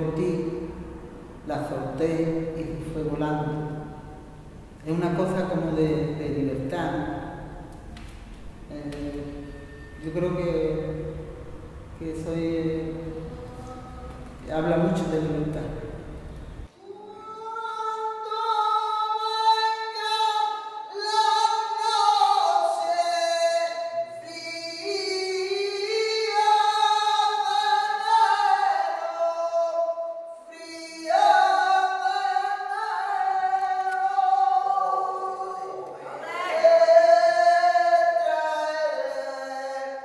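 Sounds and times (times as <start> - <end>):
woman singing long held notes: 13.1 - 14.4.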